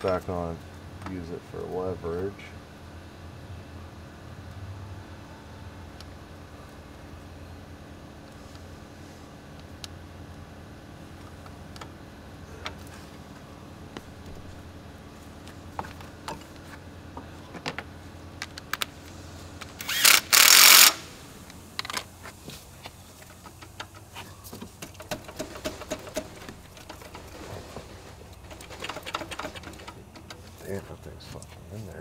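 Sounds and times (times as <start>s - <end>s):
tools clicking and knocking: 23.2s - 27.4s, 28.4s - 30.6s.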